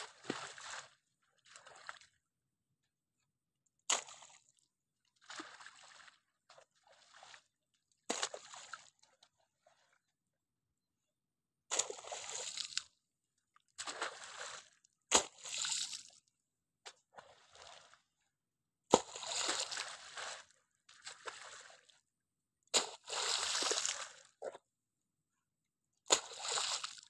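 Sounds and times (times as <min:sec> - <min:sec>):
spade digging wet mud: 0:22.8 - 0:24.6.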